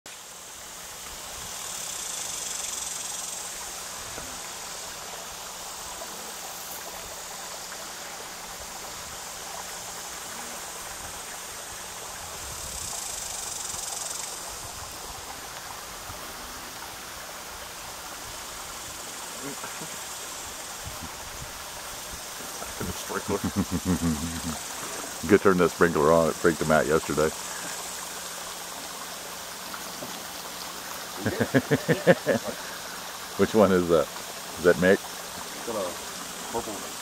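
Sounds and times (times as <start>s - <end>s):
outdoor hiss: 0.1s - 37.0s
high buzzing drone: 22.5s - 28.9s.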